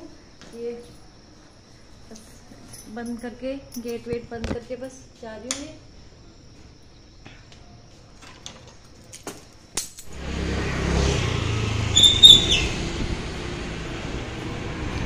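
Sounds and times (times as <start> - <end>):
street traffic rumble: 10.0 - 15.0.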